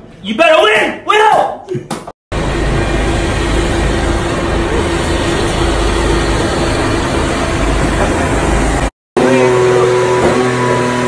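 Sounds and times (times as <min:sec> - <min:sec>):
loud engine humming: 0:02.3 - 0:11.0.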